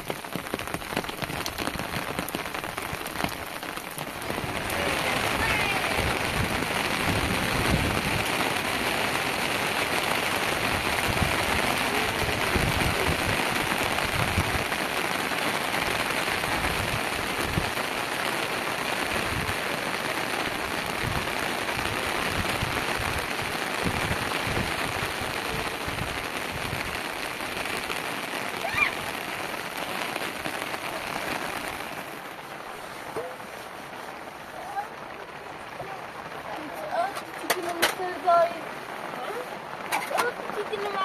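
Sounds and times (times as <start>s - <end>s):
wind gusting on microphone: 0.0s - 32.7s
heavy rain falling: 0.0s - 41.0s.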